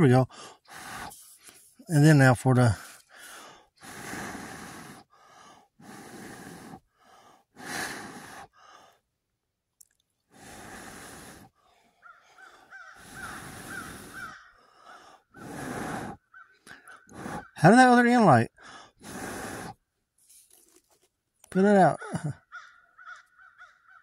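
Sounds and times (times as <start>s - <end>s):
person blowing on ember: 0.6s - 1.8s, 2.8s - 5.2s, 5.8s - 6.9s, 7.5s - 8.6s, 10.3s - 11.6s, 13.0s - 14.4s, 15.3s - 17.6s, 18.8s - 20.5s.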